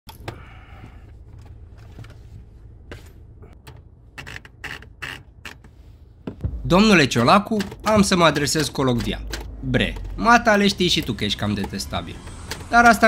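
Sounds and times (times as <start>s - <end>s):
low steady rumble: 5.8s - 7.4s.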